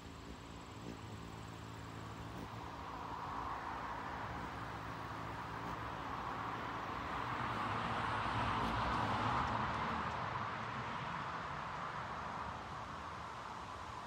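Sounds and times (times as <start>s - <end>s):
steady background hiss: 0.0s - 8.8s
car passing: 0.0s - 14.0s.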